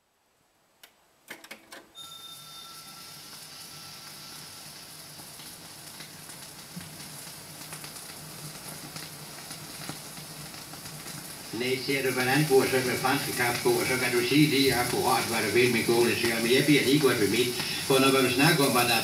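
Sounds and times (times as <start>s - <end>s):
hiss with crackle: 2.1s - 19.0s.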